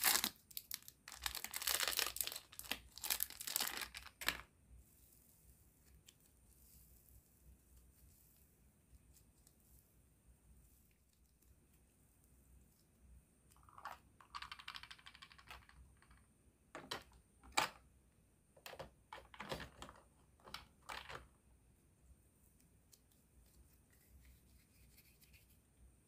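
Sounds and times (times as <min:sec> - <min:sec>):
play dough squeezed in hands: 0:00.0 - 0:04.3
plastic toy pieces clicking: 0:13.6 - 0:16.2.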